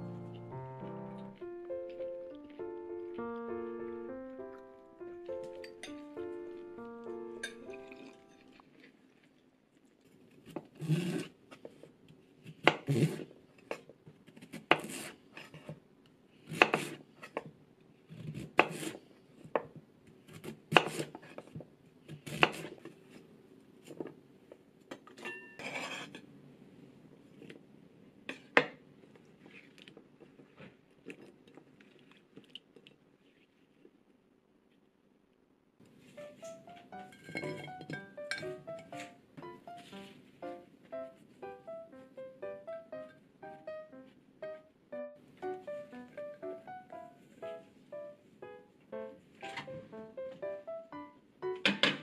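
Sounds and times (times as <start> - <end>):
knife chopping on wooden board: 14.5 - 15.1, 16.5 - 17.0, 18.3 - 18.9, 20.3 - 21.1, 22.2 - 22.7
knife scraping board: 14.7 - 15.7, 16.5 - 17.4, 18.3 - 19.0, 25.6 - 26.2.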